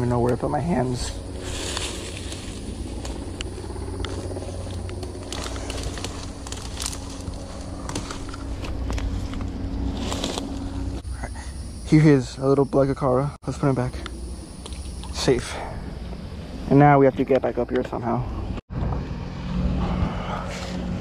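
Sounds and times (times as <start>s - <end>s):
leaves and twigs crunching underfoot: 0.0s - 11.1s
low rumble: 0.0s - 12.4s
faint hum: 0.0s - 21.0s.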